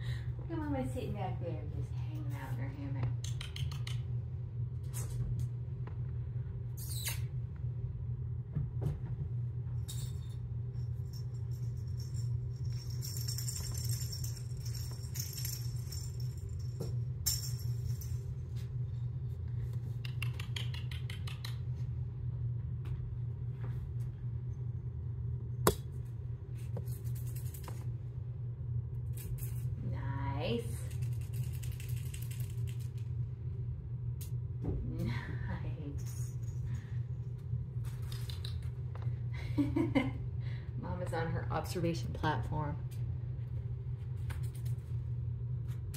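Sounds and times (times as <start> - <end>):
steady low hum: 0.0 - 45.9
cat toys jingling and rattling: 9.8 - 18.5.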